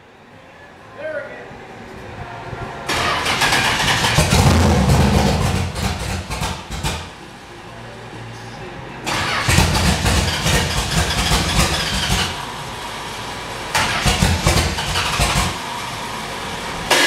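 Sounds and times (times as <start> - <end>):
engine revving: 2.9 - 7.2, 9.0 - 17.0
engine idling: 2.9 - 17.0.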